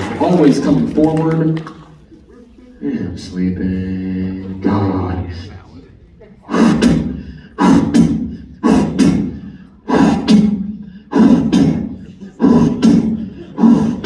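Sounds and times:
rhythmic vocal sounds through a pa: 6.5s - 14.0s.

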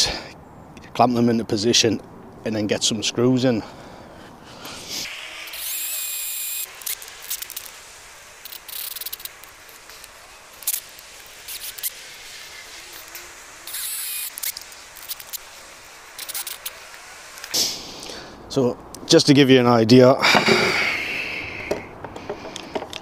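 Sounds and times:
cordless drill motor whine: 5.0s - 17.6s.

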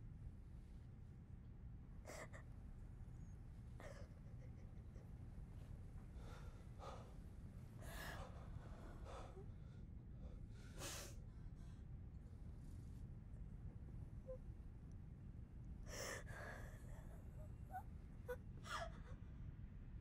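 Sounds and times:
faint low room hum: 0.0s - 20.0s.

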